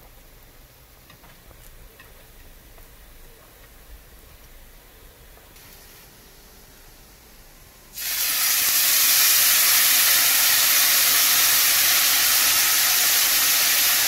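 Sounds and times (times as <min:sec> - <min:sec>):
sauce sizzling in hot pan: 0:07.9 - 0:14.0.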